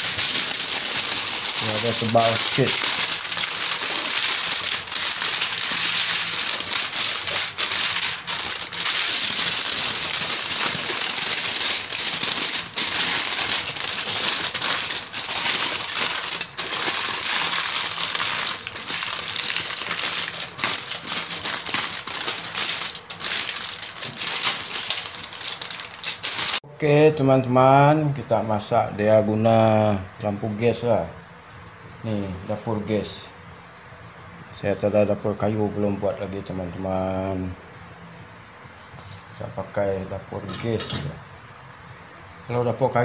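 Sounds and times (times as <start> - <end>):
aluminium foil crinkling: 0.0 - 26.6, 38.7 - 39.4.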